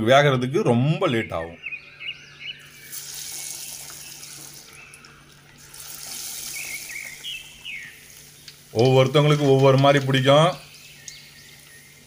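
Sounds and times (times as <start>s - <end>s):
hot oil sizzling: 2.6s - 12.0s.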